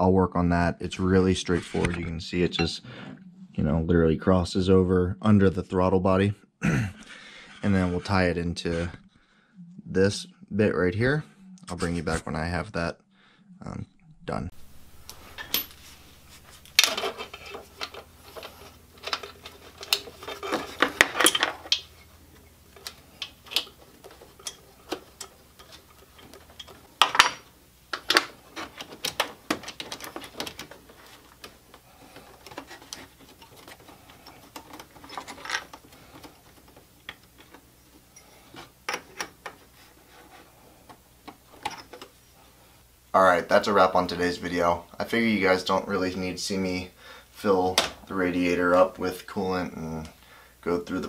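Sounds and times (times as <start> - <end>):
metal parts clinking: 15.1 - 15.9, 16.5 - 22.1, 22.7 - 31.5.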